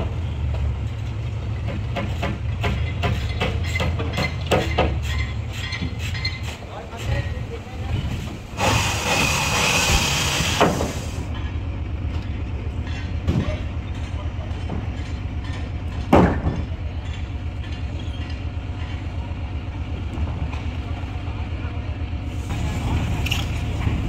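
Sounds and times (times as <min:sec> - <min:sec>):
engine running with even throb: 0:07.6 - 0:24.0
hissing noise: 0:08.2 - 0:11.2, 0:22.3 - 0:24.0.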